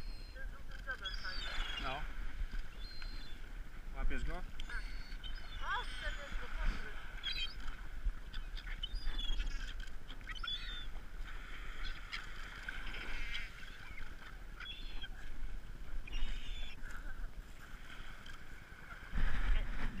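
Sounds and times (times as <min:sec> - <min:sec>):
gulls calling: 0:00.0 - 0:20.0.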